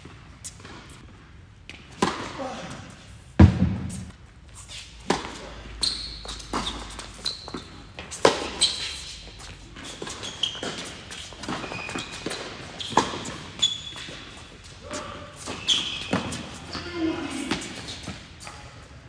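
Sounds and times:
ball bouncing on hard court: 3.4s - 4.1s
racket striking tennis ball: 3.4s - 4.1s
tennis shoes squeaking: 4.6s - 18.9s.

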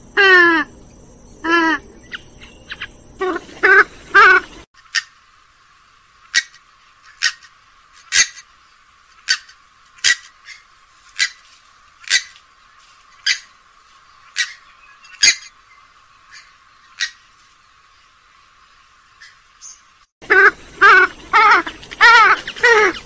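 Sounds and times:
swamphen call notes: 0.0s - 5.2s, 20.2s - 23.0s.

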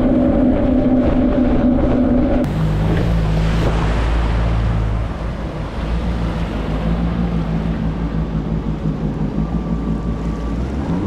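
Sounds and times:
jet ski engine drone: 0.0s - 11.0s
water rushing: 0.0s - 11.0s
wind on microphone: 0.0s - 11.0s.

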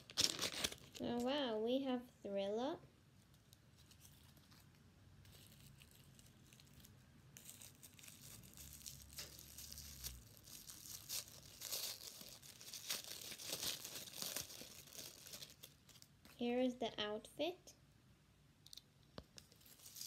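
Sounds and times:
plastic wrapper crinkling: 0.0s - 1.3s, 3.4s - 16.4s, 19.4s - 20.0s.

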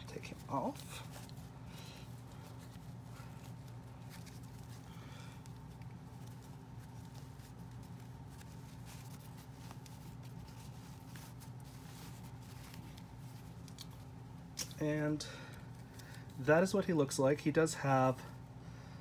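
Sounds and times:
cloth rustling and soft clicks: 0.0s - 14.8s
steady low hum: 0.0s - 19.0s.

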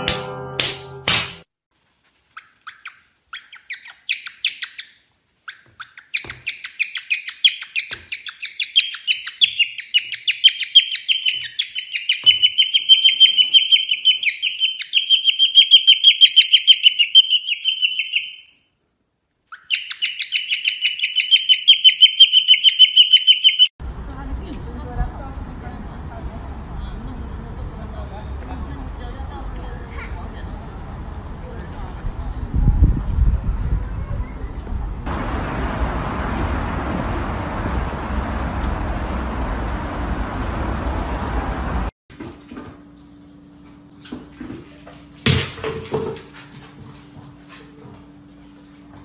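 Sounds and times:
cockatiel chirping: 2.4s - 18.6s, 19.5s - 23.7s.

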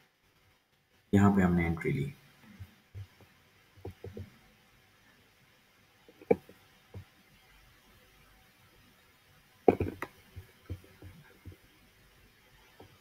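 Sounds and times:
soft knocks and clicks: 3.8s - 4.3s, 9.7s - 11.6s.

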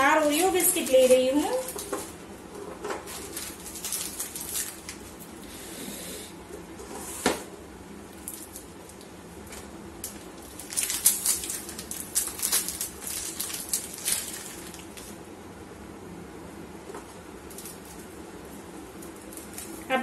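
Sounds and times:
plastic snack packet crinkling: 0.0s - 5.4s, 8.2s - 15.2s, 19.0s - 19.9s.

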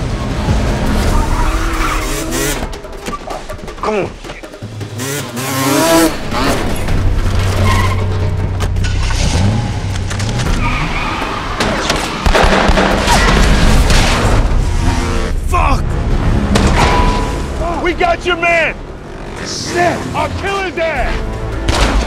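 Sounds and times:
dirt bike engines revving: 3.8s - 12.2s, 14.6s - 16.5s, 17.3s - 21.4s
tyres screeching: 5.5s - 12.2s
low droning score: 11.6s - 20.4s.

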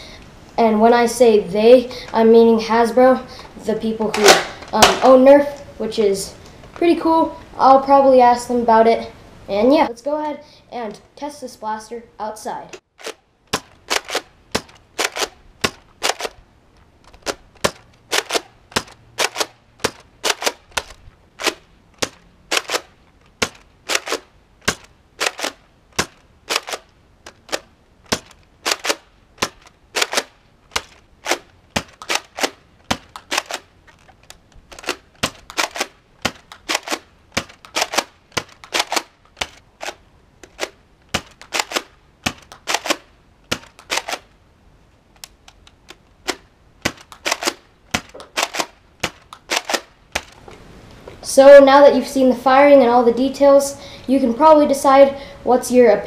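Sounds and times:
toy dart blaster clacks and pops: 4.1s - 5.2s, 12.7s - 16.4s, 17.0s - 44.3s, 45.2s - 50.4s.

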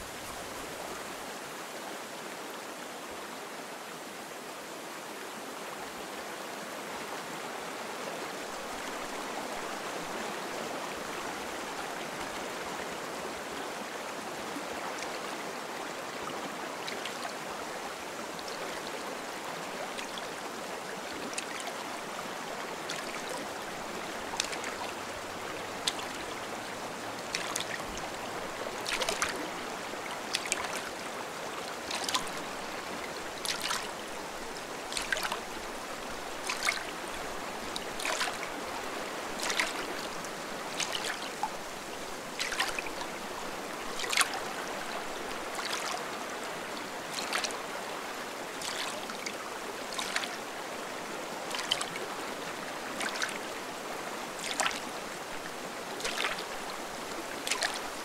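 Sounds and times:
stream water running: 0.0s - 58.0s
paddle splashing in water: 22.7s - 46.2s, 46.8s - 47.7s, 48.5s - 50.6s, 51.4s - 53.6s, 54.3s - 58.0s.

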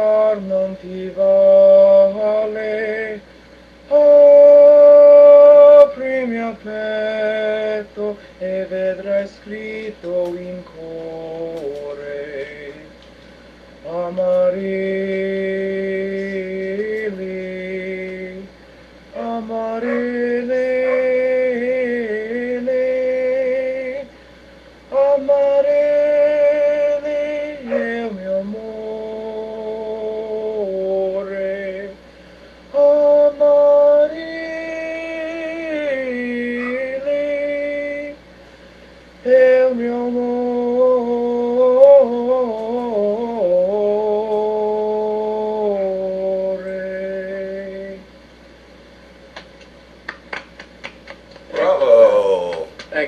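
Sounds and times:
person singing unaccompanied: 0.0s - 3.2s, 3.8s - 13.1s, 13.8s - 24.2s, 24.9s - 32.0s, 32.7s - 38.2s, 39.2s - 48.2s, 51.4s - 52.8s
person singing long held notes: 3.9s - 12.9s
singer breathing: 8.2s - 8.4s, 18.5s - 19.0s, 24.1s - 24.9s, 32.0s - 32.7s, 38.3s - 39.2s.

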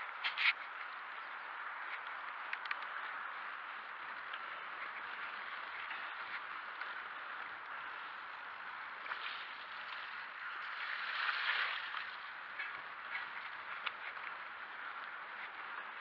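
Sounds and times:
bike tyres rolling on wet dirt: 0.0s - 16.0s
bike splashing through puddle: 4.5s - 13.8s.

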